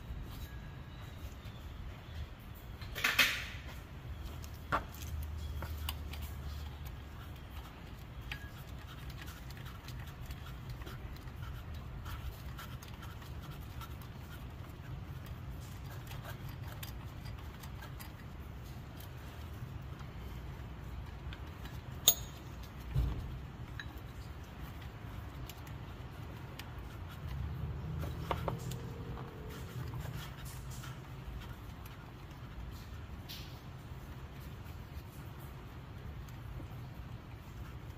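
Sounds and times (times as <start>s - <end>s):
low steady hum: 0.0s - 37.9s
metal tool handling: 21.6s - 22.7s.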